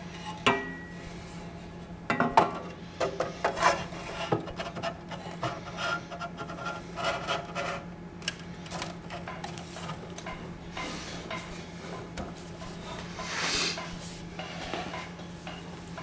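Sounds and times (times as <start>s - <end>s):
steady low hum: 0.0s - 16.0s
metal sliding and scraping on metal: 2.5s - 7.9s.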